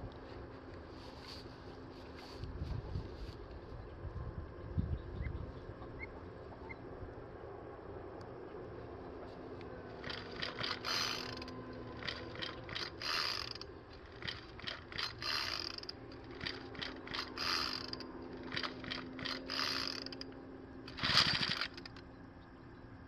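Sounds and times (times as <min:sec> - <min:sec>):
starter cord rasping: 0:09.9 - 0:22.0
ratcheting clicks: 0:10.0 - 0:22.1.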